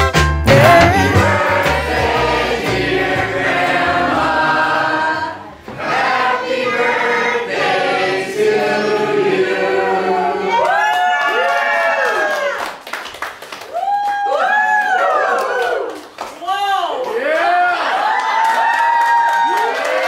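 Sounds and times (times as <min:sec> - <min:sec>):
choir singing held notes: 0:00.5 - 0:10.7.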